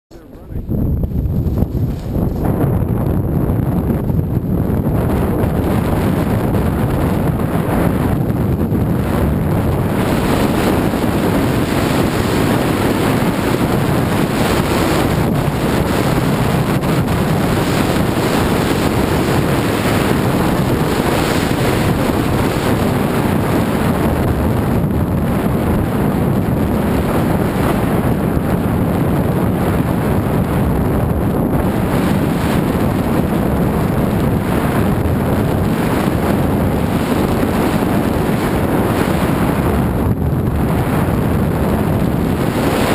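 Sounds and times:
wind buffeting microphone: 0:00.1 - 0:42.9
skis running over snow: 0:01.4 - 0:02.6.

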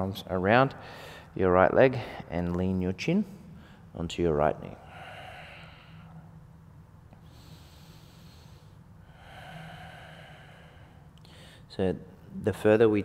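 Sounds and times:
person breathing slowly: 0:00.8 - 0:02.3, 0:04.8 - 0:06.5, 0:07.2 - 0:11.7.

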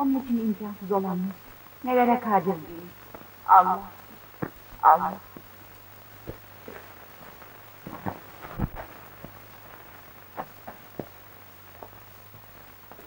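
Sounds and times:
old film soundtrack hum: 0:00.0 - 0:13.0
faint clicks and soft knocks: 0:04.0 - 0:13.0.

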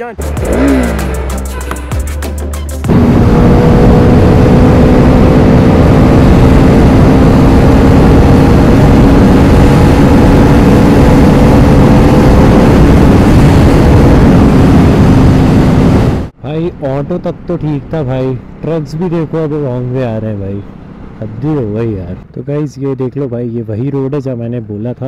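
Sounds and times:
motorcycle engine cruising: 0:00.0 - 0:02.1, 0:02.8 - 0:25.0
wind rush over microphone: 0:02.9 - 0:16.3.

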